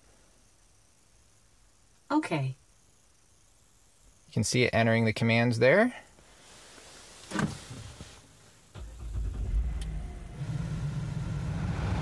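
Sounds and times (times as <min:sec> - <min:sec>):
car engine starting and idling: 0:08.7 - 0:12.0.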